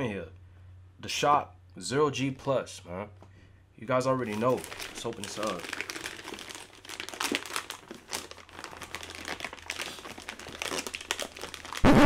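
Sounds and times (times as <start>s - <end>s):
plastic bag crinkling: 4.2s - 11.9s.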